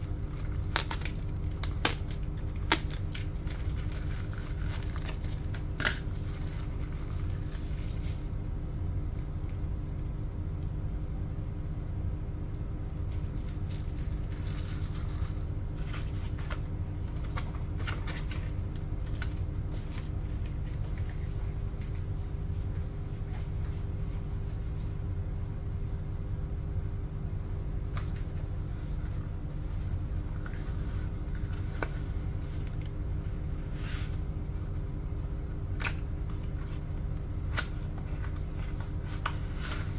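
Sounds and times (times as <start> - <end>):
paper packaging rustling: 0.0 - 8.4, 13.0 - 22.2, 36.3 - 39.9
steady low hum: 0.0 - 39.9.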